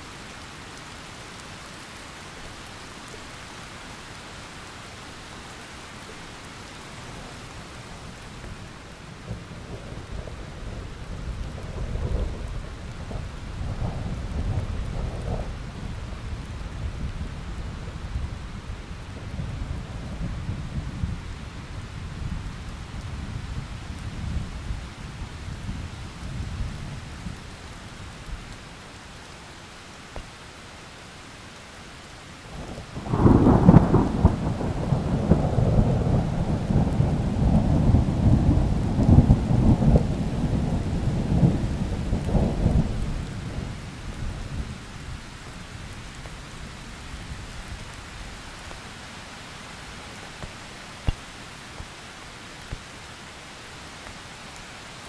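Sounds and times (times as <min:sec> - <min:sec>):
steady rain falling: 0:00.0 - 0:55.0
rumbling thunder: 0:32.7 - 0:44.8.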